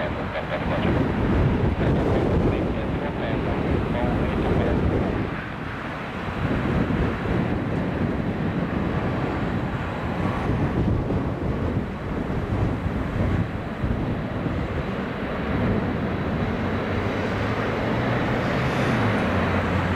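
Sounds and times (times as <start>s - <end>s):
jet engines rumbling: 0.0s - 19.9s
wind buffeting microphone: 0.0s - 19.9s.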